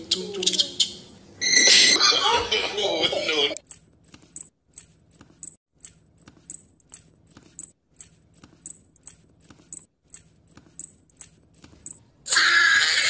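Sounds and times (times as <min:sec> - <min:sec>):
regular clicking: 0:03.6 - 0:12.0.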